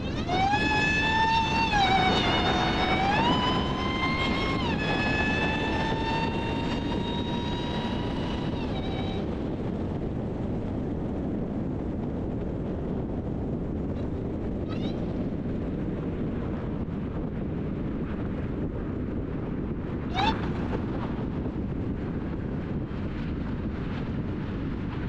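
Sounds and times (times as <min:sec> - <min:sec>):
supercharger whine: 0:00.0 - 0:10.0
wind and road rush: 0:00.0 - 0:25.0.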